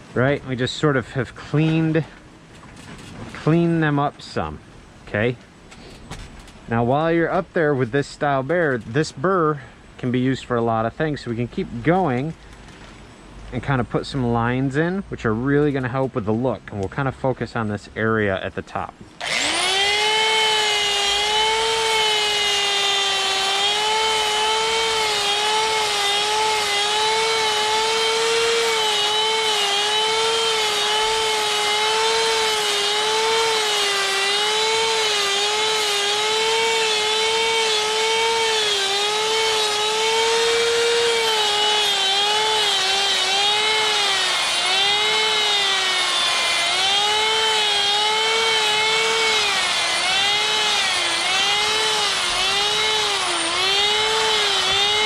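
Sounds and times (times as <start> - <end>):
die grinder whining against wood: 19.2 - 55.0.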